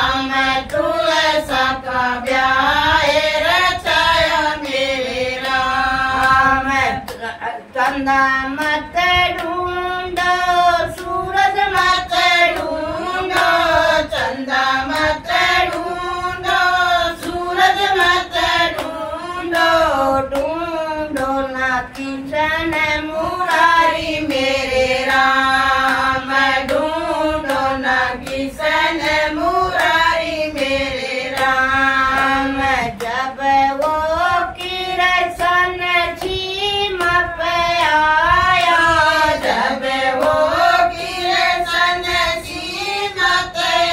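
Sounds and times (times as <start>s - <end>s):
women singing together: 0.0s - 43.9s
hand clapping: 0.1s - 1.6s, 2.2s - 43.9s.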